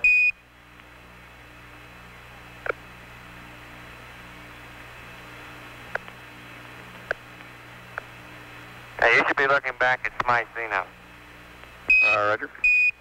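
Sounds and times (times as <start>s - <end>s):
radio hum and hiss: 0.0s - 13.0s
brief radio clicks: 10.0s - 10.4s.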